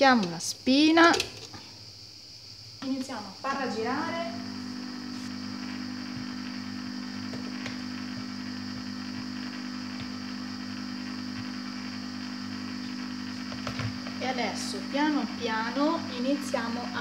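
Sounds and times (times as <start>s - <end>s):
ice cream maker motor humming: 3.6s - 17.0s.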